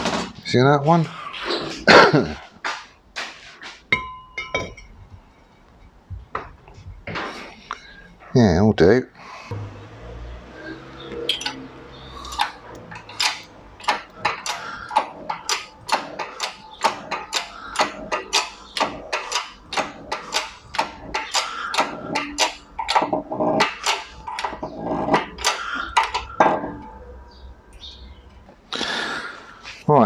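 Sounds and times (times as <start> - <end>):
hydraulic press pump clicking: 12.2 - 26.9.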